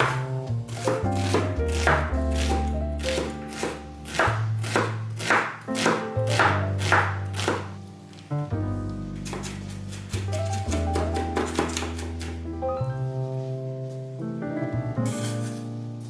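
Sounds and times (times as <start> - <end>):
knife chopping on wooden board: 0.0 - 7.7, 9.2 - 12.4
background music: 0.0 - 16.0.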